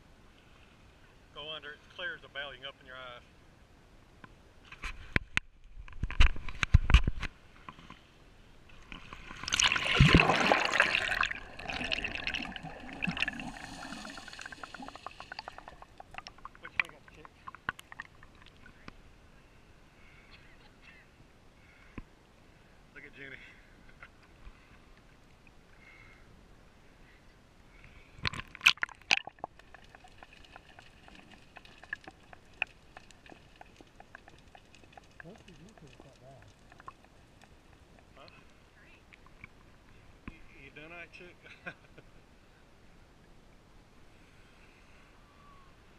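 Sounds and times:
faint underwater hum: 0:07.4 - 0:45.9
seawater splashing: 0:08.7 - 0:18.9, 0:28.3 - 0:38.2
rush of bubbles: 0:08.8 - 0:18.8, 0:28.2 - 0:37.8
loud splashes and gurgles: 0:09.2 - 0:18.5
muffled underwater bubbling: 0:09.4 - 0:18.9, 0:28.7 - 0:38.2.

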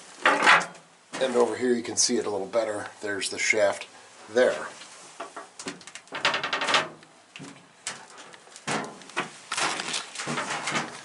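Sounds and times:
rattly clatter: 0:06.1 - 0:07.0.

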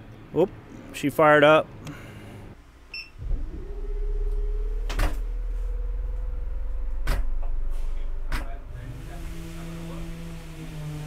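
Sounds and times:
air conditioner humming: 0:00.0 - 0:11.0
control panel beep: 0:02.9 - 0:03.2
sharp knocks: 0:07.0 - 0:07.6.

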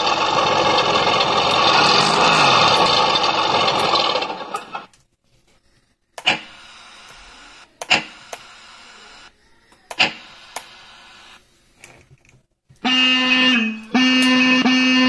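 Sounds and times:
vehicle horn blasts: 0:12.8 - 0:15.0.

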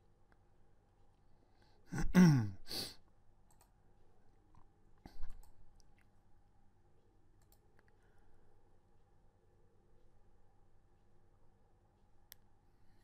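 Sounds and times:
man's low grunt: 0:01.9 - 0:02.6
quick breath: 0:02.7 - 0:03.0
computer mouse click: 0:03.5 - 0:03.7, 0:05.1 - 0:06.1, 0:07.4 - 0:08.0.

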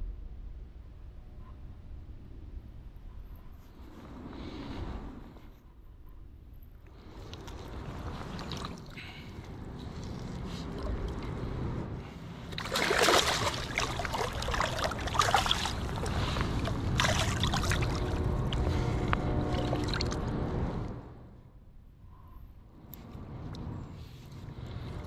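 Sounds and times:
river water rushing and splashing: 0:12.5 - 0:18.7.

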